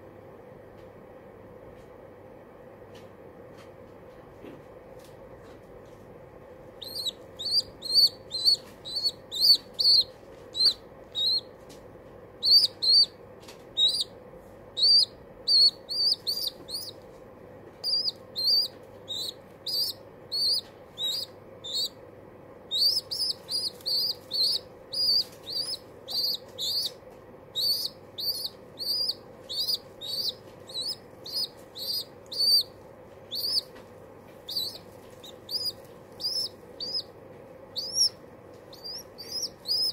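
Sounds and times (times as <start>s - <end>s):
baby pigeon squeaking: 6.7s - 17.1s, 17.7s - 39.9s.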